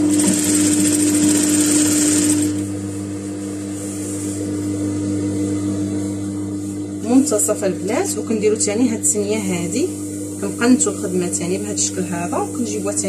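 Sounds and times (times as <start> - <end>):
sewing machine stitching: 0.0 - 2.6
low hum: 2.4 - 12.1.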